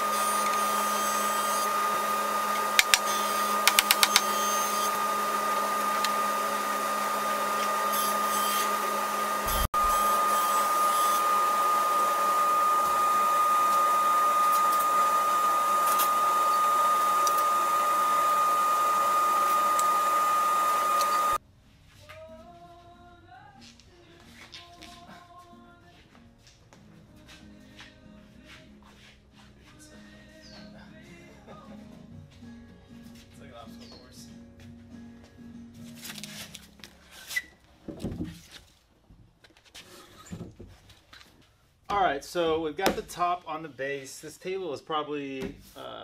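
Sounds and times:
high whine: 0:00.0 - 0:21.4
shop machine whirring: 0:00.0 - 0:21.4.

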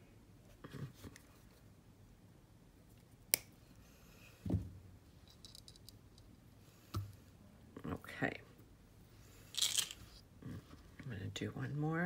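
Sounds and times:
small metal parts clicking: 0:05.2 - 0:06.0, 0:09.5 - 0:10.0.

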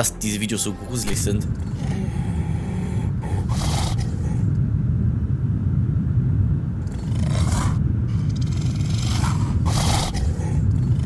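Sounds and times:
low rumbling drone: 0:00.0 - 0:11.0
hissing whoosh: 0:01.0 - 0:04.5.

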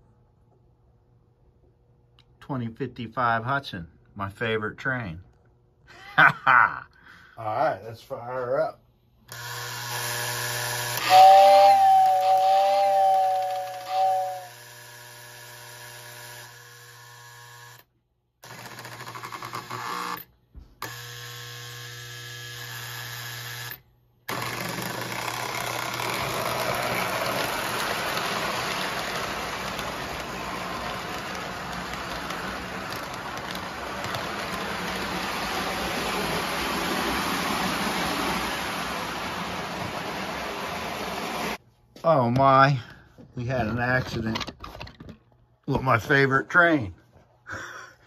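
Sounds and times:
model train rolling on track: 0:09.4 - 0:17.8, 0:24.3 - 0:41.6
model train whistle: 0:09.4 - 0:17.8, 0:24.3 - 0:35.1.

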